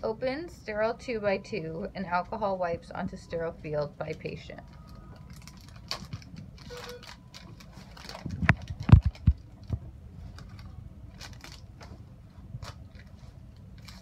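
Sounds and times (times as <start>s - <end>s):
wrappers crinkling: 4.1s - 12.0s, 12.6s - 14.0s.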